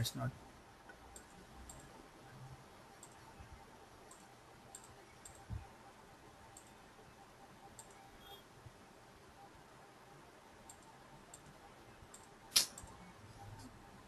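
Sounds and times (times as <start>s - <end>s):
faint mouse clicks: 3.0s - 3.2s, 4.1s - 5.6s, 7.8s - 8.0s.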